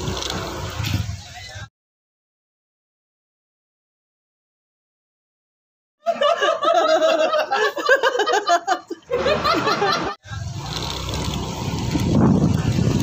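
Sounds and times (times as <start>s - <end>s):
vehicle running: 0.0s - 1.1s, 9.1s - 13.0s
man cackling laughter: 6.0s - 10.5s.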